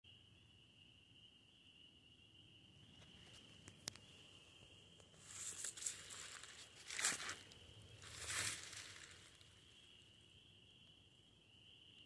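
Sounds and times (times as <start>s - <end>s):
footsteps crunching through dry leaves: 5.2s - 9.4s.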